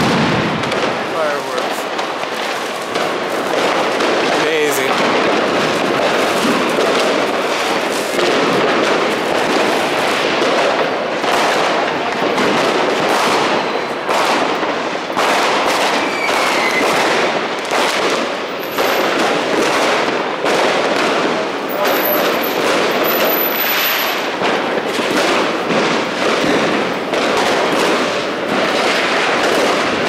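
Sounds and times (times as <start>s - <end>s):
fireworks crackling and banging: 0.0s - 30.0s
firework whistle: 15.8s - 17.1s, 18.6s - 19.2s, 21.6s - 24.3s.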